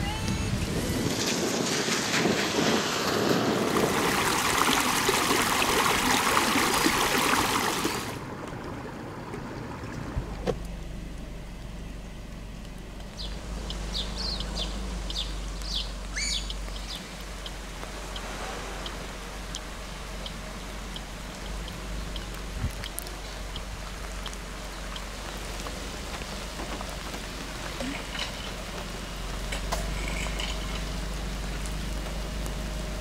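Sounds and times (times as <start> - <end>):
wind and water rushing: 0.0 - 10.6
low hum: 8.1 - 33.0
small bird chirping: 13.1 - 22.4.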